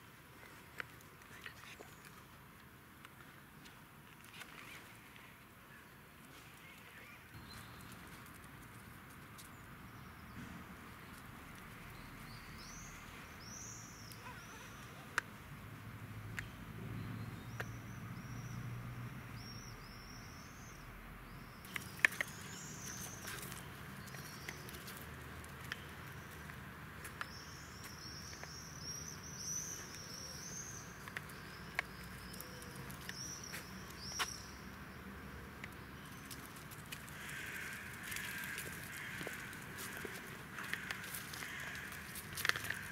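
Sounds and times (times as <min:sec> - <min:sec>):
faint outdoor background: 0:00.0 - 0:42.9
birds chirping: 0:09.2 - 0:15.4, 0:16.4 - 0:42.9.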